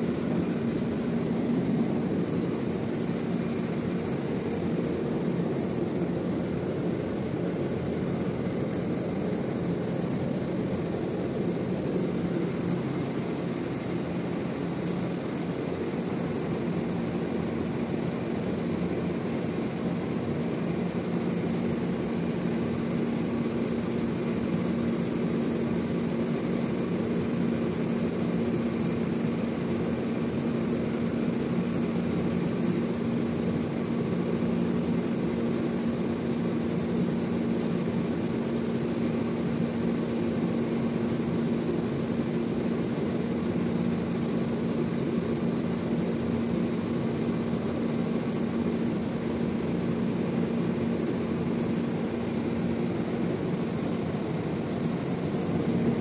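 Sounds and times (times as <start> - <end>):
refrigerator humming: 0.0 - 15.0.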